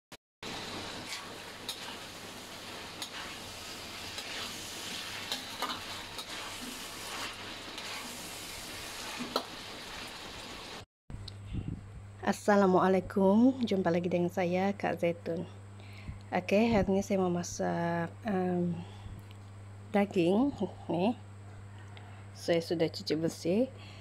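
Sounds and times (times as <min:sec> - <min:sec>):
food sizzling in a wok: 0:00.4 - 0:10.9
spatula scraping a pan: 0:01.0 - 0:10.0.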